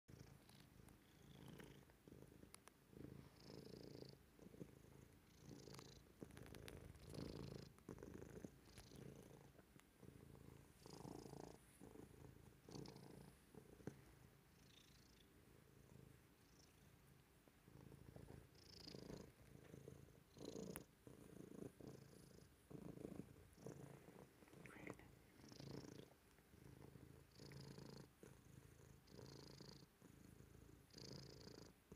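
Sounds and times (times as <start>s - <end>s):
cat purring: 0.1s - 31.9s.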